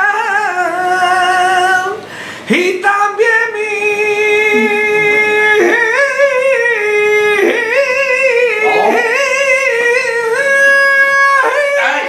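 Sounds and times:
man singing wordless melisma: 0.0 - 12.0
singer breathing: 2.0 - 2.5.

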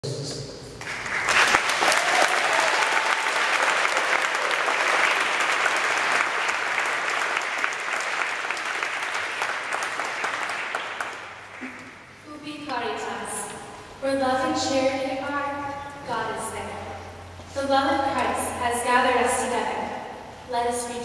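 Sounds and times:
audience applauding: 0.8 - 12.1.

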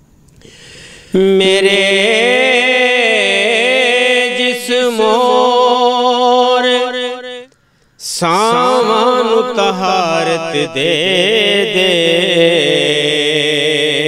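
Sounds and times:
man breathing in: 0.4 - 1.2, 7.5 - 8.0
man singing unaccompanied: 0.9 - 14.0.

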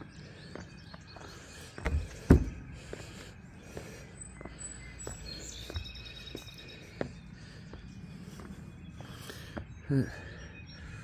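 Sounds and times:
footsteps on wooden ties: 0.0 - 10.3
heavy thump: 1.9 - 2.6.

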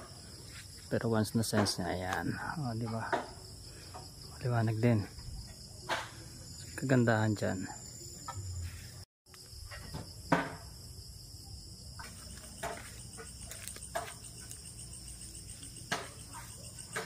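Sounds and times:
crickets chirring: 0.0 - 17.0
sharp knocks: 9.8 - 10.7.

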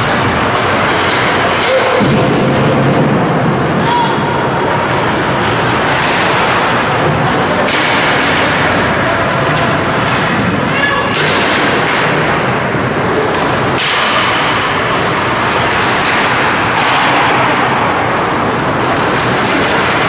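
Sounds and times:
stick hitting puck: 0.0 - 2.6, 5.4 - 12.6, 13.3 - 20.0
arena noise rush: 0.0 - 20.0
skates scraping ice: 0.0 - 20.0.

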